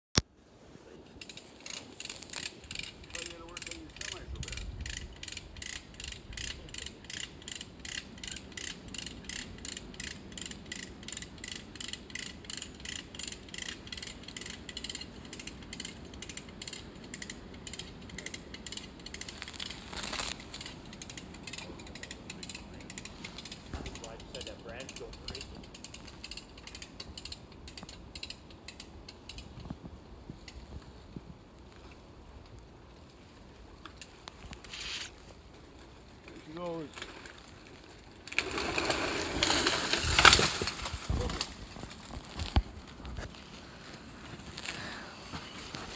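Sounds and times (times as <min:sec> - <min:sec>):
hand ratchet clicking: 0:01.2 - 0:23.6, 0:24.3 - 0:29.5.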